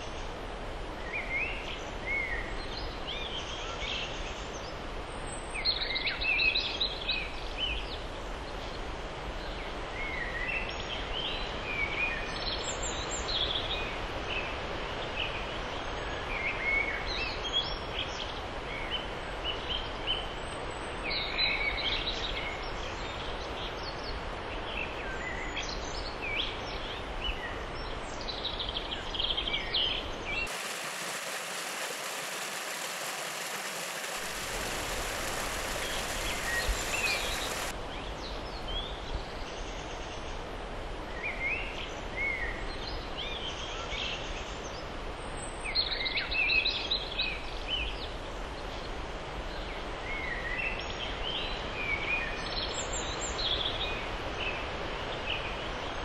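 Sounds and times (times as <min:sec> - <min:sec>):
background hiss: 0:30.5 - 0:37.7
stream rushing over rocks: 0:30.5 - 0:37.7.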